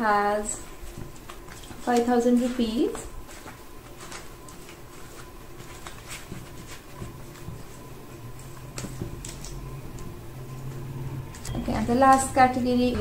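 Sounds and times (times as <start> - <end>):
paper rustling: 0.3 - 10.2.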